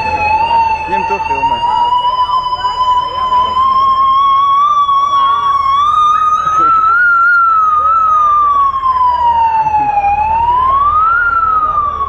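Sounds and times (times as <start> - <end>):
police siren wailing: 0.0 - 12.0.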